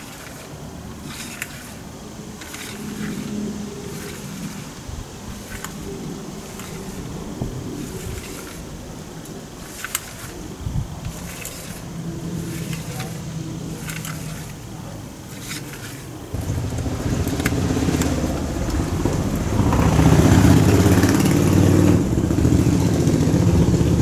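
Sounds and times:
plastic parts clicking: 0.0s - 19.0s
engine running: 0.0s - 24.0s.

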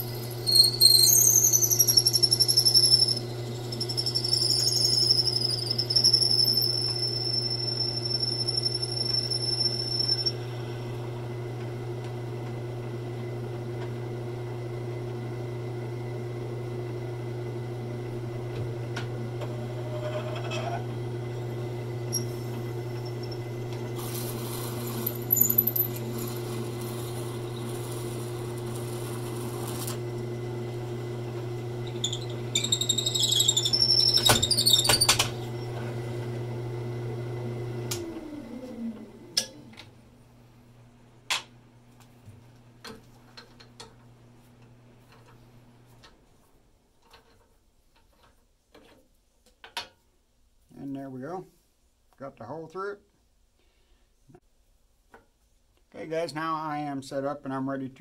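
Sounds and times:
drill bit cutting high-pitched: 0.0s - 10.4s, 22.1s - 29.9s, 31.8s - 35.1s
wood lathe running: 0.0s - 13.8s, 18.1s - 39.2s.

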